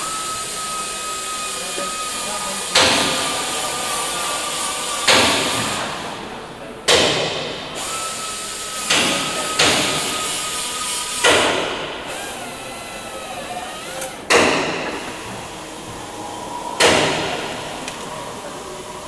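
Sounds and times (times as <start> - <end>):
hammer striking metal: 6.9 - 7.6, 14.3 - 15.2, 16.8 - 17.7.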